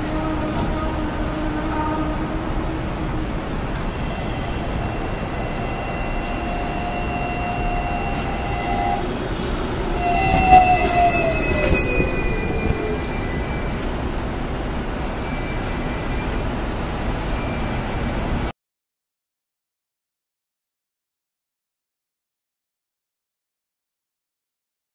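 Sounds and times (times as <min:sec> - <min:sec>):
tram rolling rumble: 0:00.0 - 0:18.5
tram wheels squealing on rails: 0:00.0 - 0:18.5.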